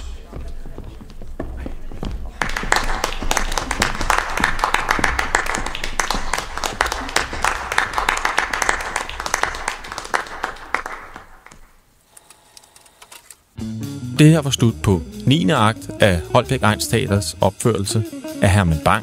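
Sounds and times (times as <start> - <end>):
audience applause: 2.3 - 11.7.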